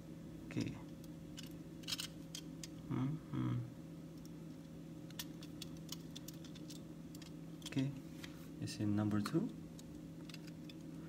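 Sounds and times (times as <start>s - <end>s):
steady low hum: 0.0s - 11.0s
person humming: 2.8s - 3.8s.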